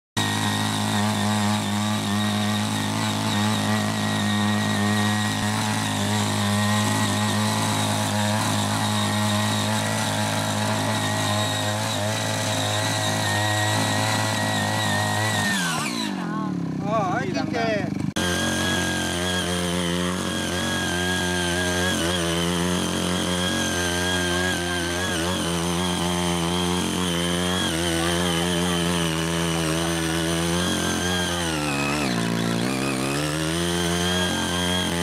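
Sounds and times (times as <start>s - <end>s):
small engine running at high revs: 0.0s - 35.0s
tines churning soil: 0.2s - 35.0s.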